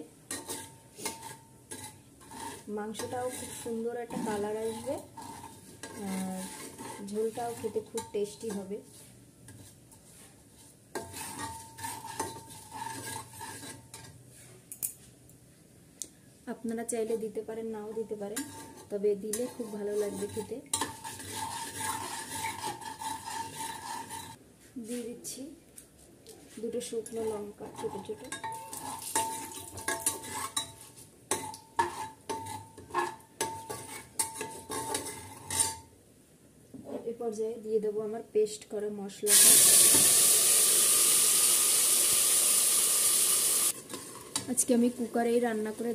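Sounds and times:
low sizzle of hot oil: 0:00.0 - 0:14.4, 0:16.5 - 0:24.4, 0:26.7 - 0:35.9, 0:39.1 - 0:45.9
steel spatula scraping pot: 0:00.2 - 0:14.6, 0:17.8 - 0:24.4, 0:26.8 - 0:35.9, 0:43.6 - 0:44.8.

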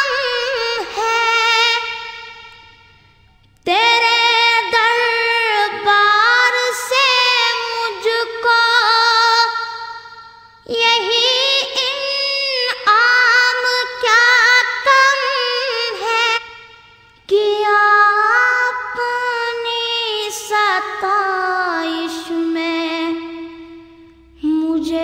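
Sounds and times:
person singing: 0:17.3 - 0:25.0.

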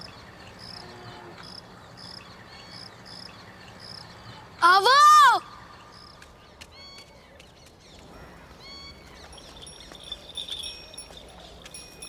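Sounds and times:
bird calls: 0:00.0 - 0:12.0
high tinkling: 0:09.3 - 0:12.0.

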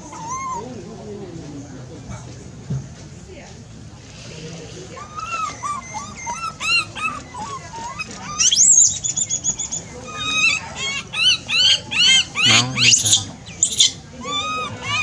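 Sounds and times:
harsh monkey call: 0:05.0 - 0:15.0
monkeys squeaking and chirping: 0:05.0 - 0:15.0
monkey rising call and trill: 0:05.1 - 0:15.0.

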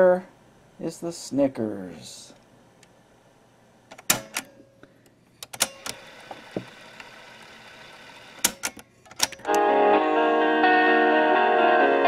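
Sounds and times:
cassette recorder keys clunking: 0:03.9 - 0:04.5, 0:08.4 - 0:09.6
tape motor whirring: 0:05.6 - 0:08.7.

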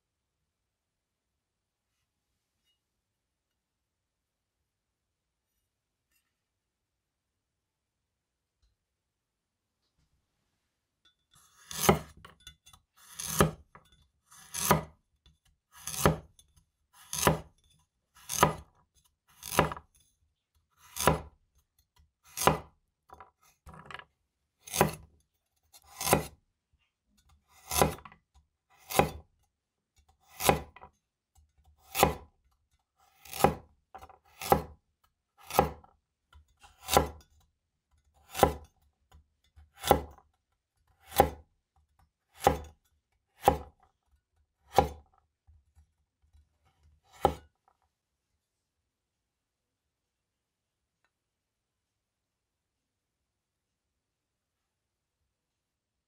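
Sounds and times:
knife chopping on wooden board: 0:11.6 - 0:15.0, 0:15.7 - 0:19.9, 0:20.8 - 0:21.4, 0:22.0 - 0:24.0, 0:24.6 - 0:26.4, 0:27.2 - 0:29.3, 0:30.0 - 0:32.4, 0:33.0 - 0:47.5.

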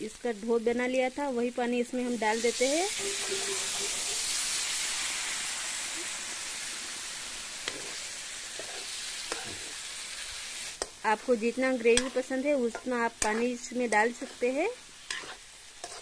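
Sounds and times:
loud sizzling in hot oil: 0:00.0 - 0:16.0
ladle stirring a pan: 0:02.4 - 0:04.8, 0:07.6 - 0:16.0.

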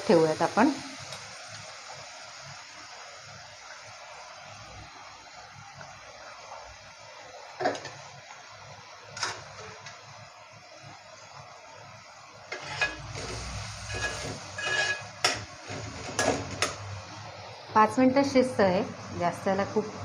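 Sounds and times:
metal spoon scraping a pan: 0:12.5 - 0:16.7.

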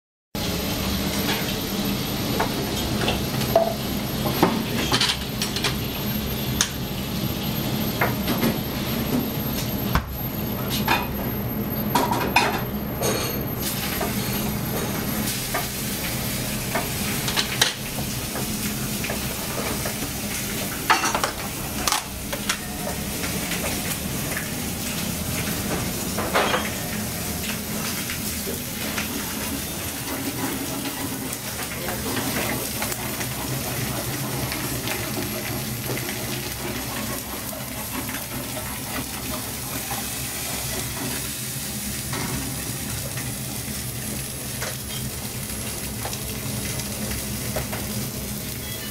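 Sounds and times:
food sizzling in pans: 0:00.4 - 0:48.9
clinks of dishes and pans: 0:26.2 - 0:26.9.

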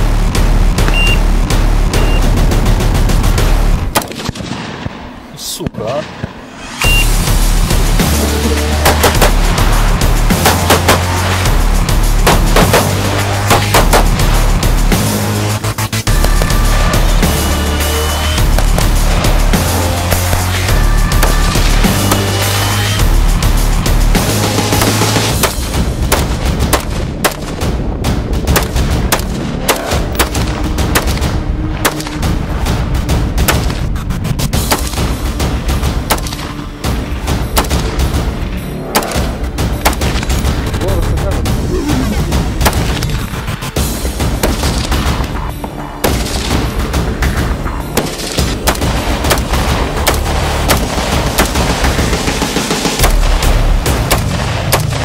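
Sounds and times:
background music: 0:00.0 - 0:55.0
rifle shots with echo: 0:03.9 - 0:05.3, 0:28.5 - 0:32.3, 0:36.0 - 0:36.5, 0:37.5 - 0:38.2, 0:48.0 - 0:55.0.

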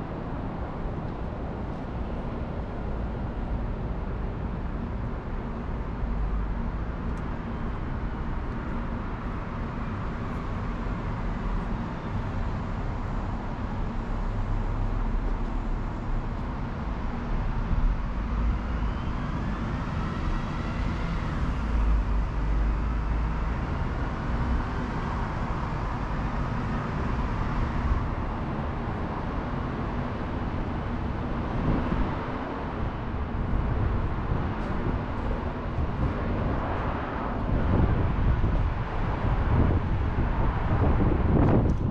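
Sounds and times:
road traffic rumble: 0:00.0 - 0:41.9
passing vehicle whine: 0:07.6 - 0:41.9.

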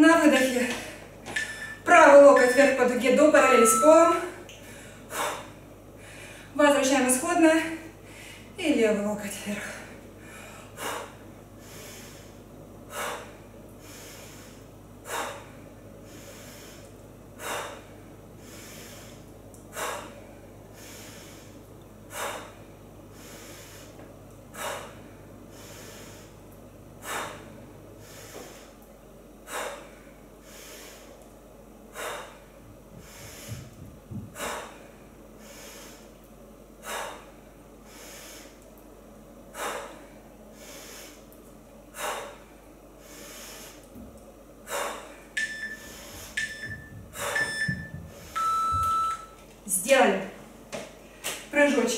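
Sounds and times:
woman's forceful breaths out: 0:33.0 - 0:36.0, 0:47.1 - 0:48.4.

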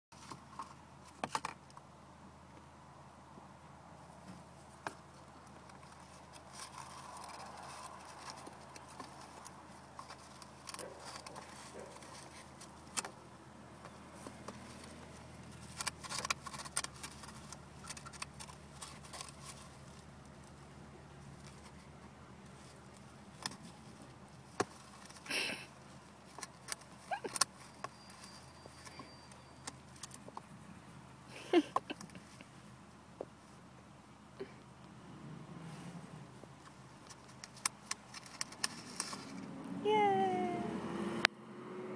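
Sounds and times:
hedgehog feet scratching: 0:04.2 - 0:13.2, 0:13.8 - 0:30.6.

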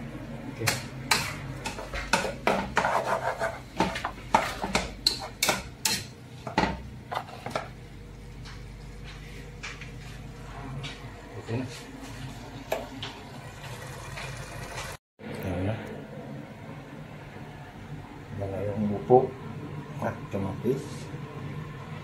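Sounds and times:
spatula scraping frying pan: 0:01.1 - 0:06.5.

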